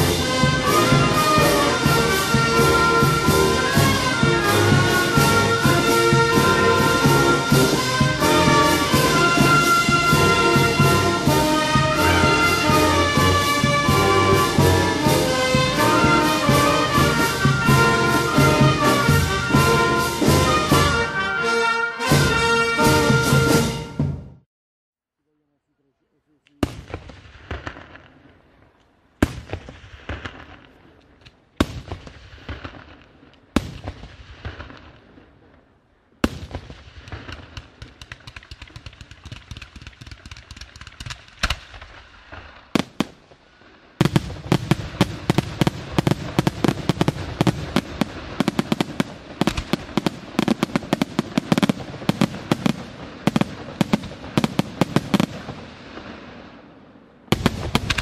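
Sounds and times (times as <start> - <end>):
rapid barrage of firework bangs: 0.0 - 21.0, 26.6 - 28.4, 29.2 - 35.6, 36.2 - 56.7, 57.3 - 58.0
fireworks crackling: 0.0 - 23.7, 26.4 - 58.0.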